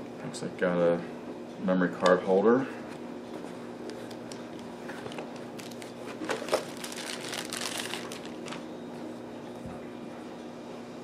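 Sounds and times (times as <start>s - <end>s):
plastic bag crinkling: 4.2s - 8.7s.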